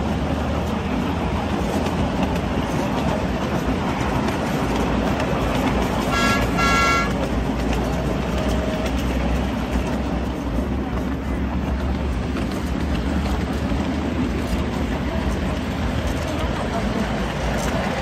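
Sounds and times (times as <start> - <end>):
miniature train rumbling: 0.0 - 18.0
train horn toots: 6.0 - 7.3.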